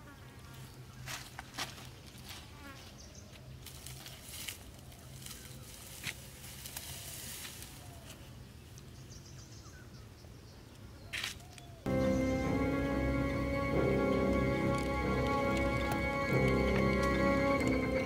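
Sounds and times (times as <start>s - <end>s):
bare feet on dry leaves: 0.5s - 8.9s.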